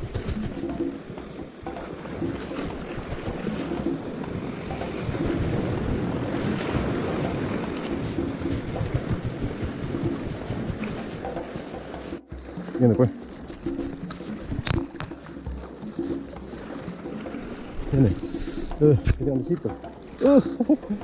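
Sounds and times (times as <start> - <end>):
wind buffeting microphone: 0.0 - 12.2
sea waves on rocks: 0.0 - 21.0.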